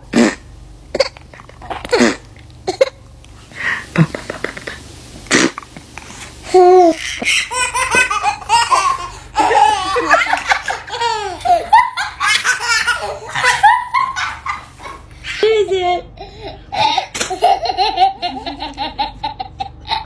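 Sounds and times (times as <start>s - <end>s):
baby laughing: 6.5s - 15.6s, 16.2s - 20.0s.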